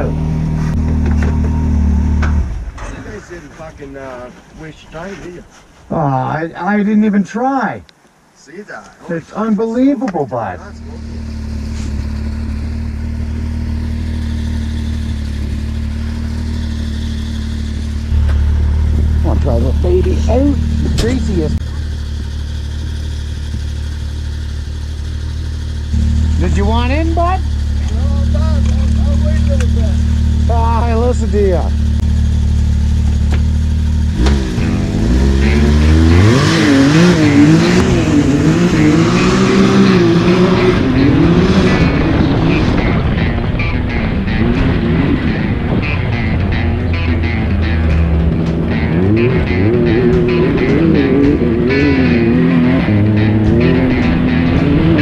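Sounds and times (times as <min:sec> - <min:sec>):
engine idling: 0:10.6 - 0:39.5
engine revving hard: 0:33.8 - 0:55.0.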